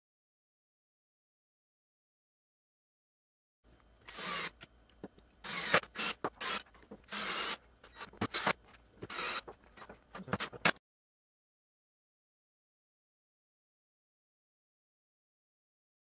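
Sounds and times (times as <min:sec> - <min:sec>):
cordless drill driving screws: 0:04.0 - 0:04.7, 0:05.4 - 0:09.6.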